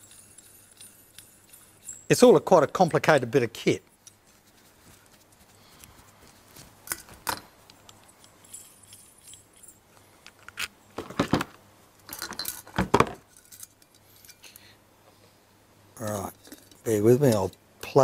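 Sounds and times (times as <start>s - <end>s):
metal and glass parts clinking: 0.0s - 3.3s, 6.9s - 10.7s, 12.1s - 14.6s, 16.2s - 17.6s.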